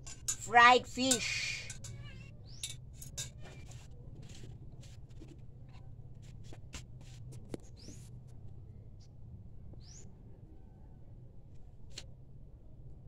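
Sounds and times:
chopsticks and tableware clicking: 0.0 - 3.7
low steady hum: 0.0 - 13.0.

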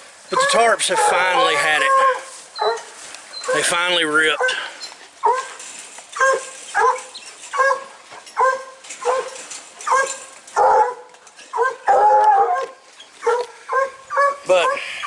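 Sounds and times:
dog barking: 6.2 - 14.9.

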